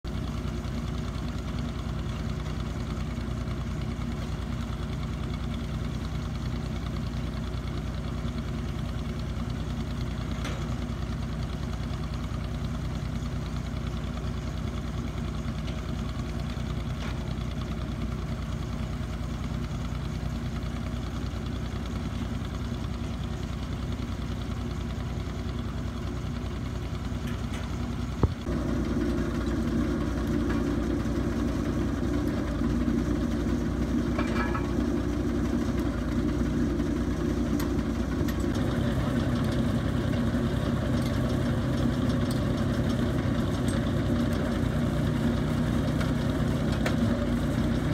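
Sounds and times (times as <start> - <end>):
drilling rig engine running: 0.0 - 47.9.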